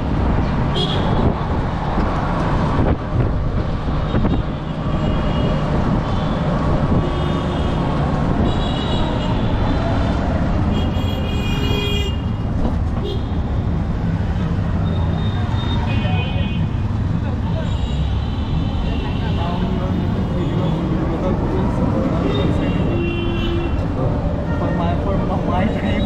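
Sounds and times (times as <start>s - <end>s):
road traffic noise: 0.0s - 26.0s
vehicle horns honking: 10.7s - 12.4s, 22.3s - 25.2s.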